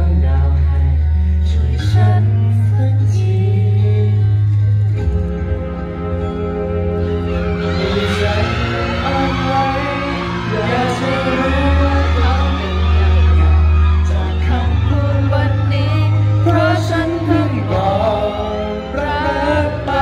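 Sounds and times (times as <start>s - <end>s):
man singing into microphone: 0.0s - 4.9s, 7.3s - 20.0s
pop backing music with bass: 0.0s - 20.0s
second man singing: 7.2s - 20.0s.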